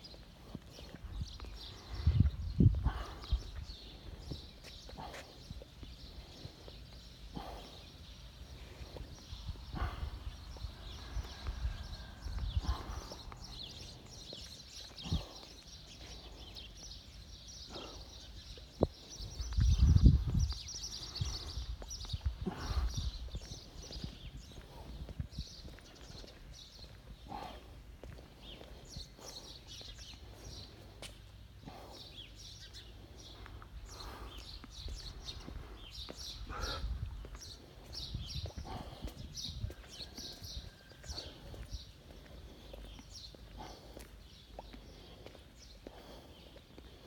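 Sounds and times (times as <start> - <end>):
footsteps on stone paving: 0.0 - 47.0
small birds chirping: 0.0 - 47.0
low rumble on microphone: 1.0 - 4.4, 19.3 - 25.5.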